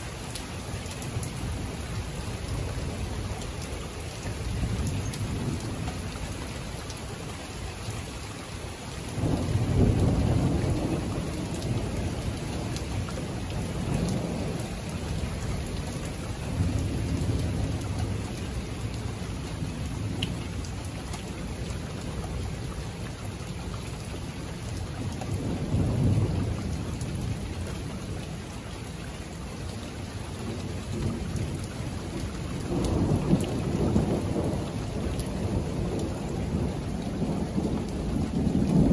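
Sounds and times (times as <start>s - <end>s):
steady rain: 0.0s - 38.9s
low thunder rumbles: 9.0s - 23.2s, 24.7s - 28.1s, 30.4s - 38.9s.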